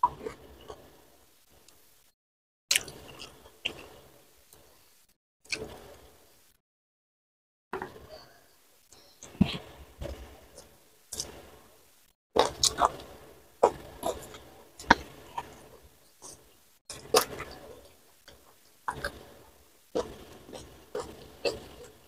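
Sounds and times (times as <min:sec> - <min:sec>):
person chewing food: 0:02.7 - 0:04.8, 0:12.4 - 0:22.0.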